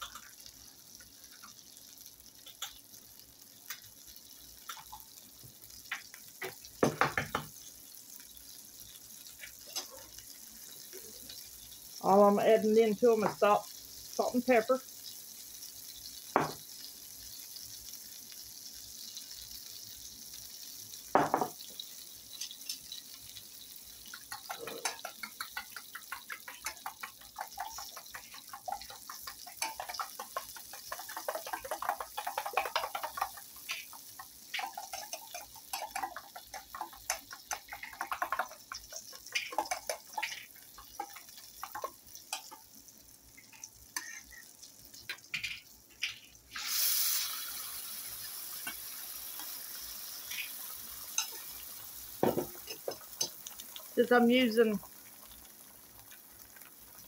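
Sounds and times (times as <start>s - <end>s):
butter sizzling in a skillet: 0.0s - 57.0s
eggs beaten in a metal bowl: 24.0s - 42.6s.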